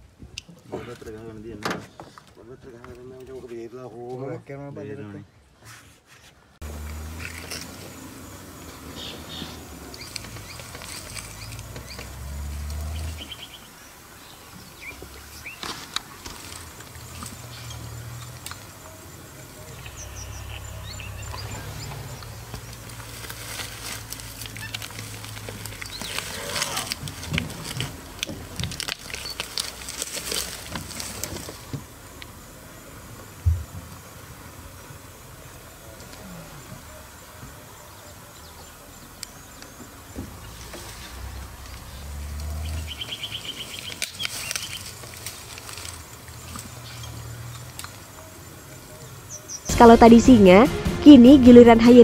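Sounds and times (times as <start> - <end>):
dry grass rustling: 5.7 - 34.7, 39.4 - 50.6.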